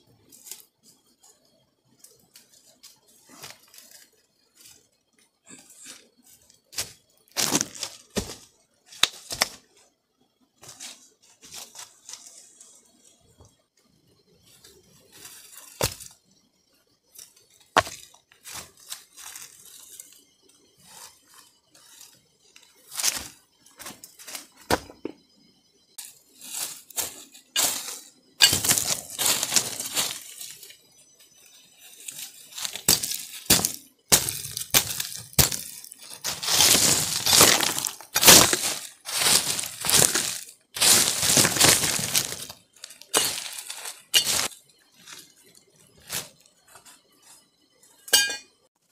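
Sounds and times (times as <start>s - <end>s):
stones clinking together: 28.4s - 29.8s, 32.7s - 44.5s
blade scraping stony soil: 31.9s - 44.6s.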